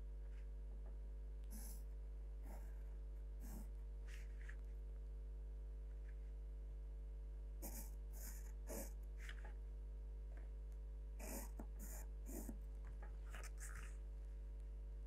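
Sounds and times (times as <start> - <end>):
steady low hum: 0.0 - 15.0
pencil scratching on paper: 1.5 - 2.8, 3.4 - 4.6, 7.6 - 9.5, 11.2 - 12.6, 13.2 - 14.0.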